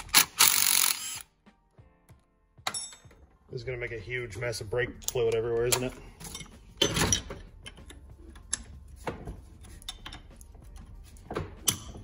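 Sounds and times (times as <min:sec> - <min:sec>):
wrench clicking and scraping metal: 0:00.0 - 0:01.2, 0:05.0 - 0:08.9, 0:09.6 - 0:11.0, 0:11.6 - 0:12.0.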